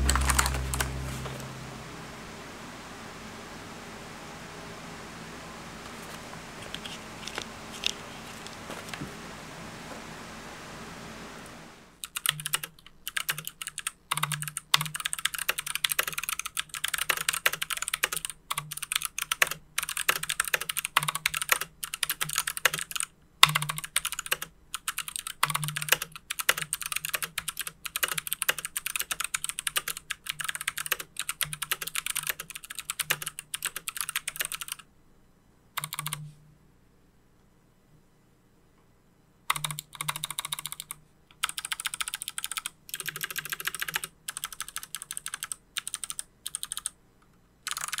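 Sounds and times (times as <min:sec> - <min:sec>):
clicky mechanical keyboard typing: 0:00.0 - 0:01.0, 0:12.0 - 0:34.9, 0:35.8 - 0:36.2, 0:39.5 - 0:47.0, 0:47.6 - 0:48.0.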